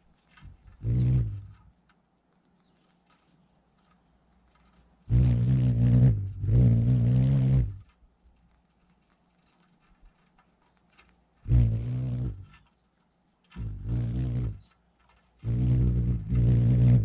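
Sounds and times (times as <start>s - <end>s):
hummingbird wings humming: 0.0s - 1.7s, 2.6s - 7.9s, 11.4s - 12.6s, 13.5s - 17.0s.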